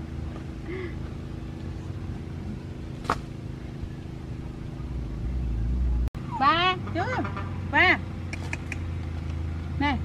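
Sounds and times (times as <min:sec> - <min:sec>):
low motor hum: 0:00.0 - 0:10.0.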